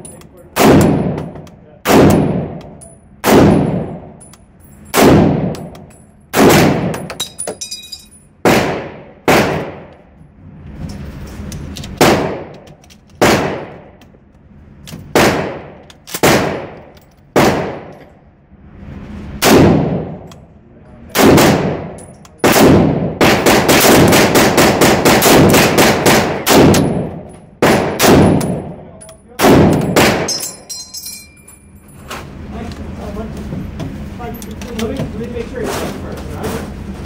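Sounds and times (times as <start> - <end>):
rifle shots echoing: 0.5 - 4.2, 4.9 - 7.1, 8.4 - 10.0, 12.0 - 12.6, 13.2 - 14.0, 15.0 - 18.0, 19.4 - 20.3, 21.1 - 28.8, 29.4 - 30.5
high metallic ping: 30.2 - 31.9.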